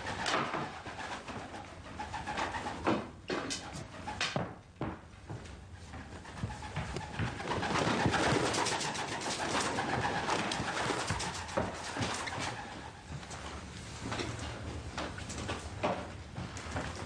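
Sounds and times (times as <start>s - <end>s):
pigeon wings flapping: 0.0s - 4.5s, 5.9s - 13.2s.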